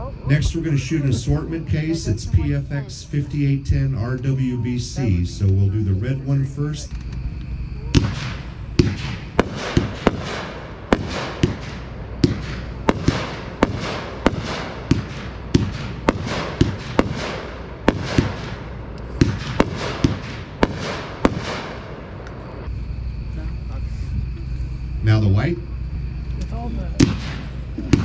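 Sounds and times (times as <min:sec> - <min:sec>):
fireworks bangs with hissing tails: 0:07.8 - 0:22.9, 0:26.9 - 0:28.0.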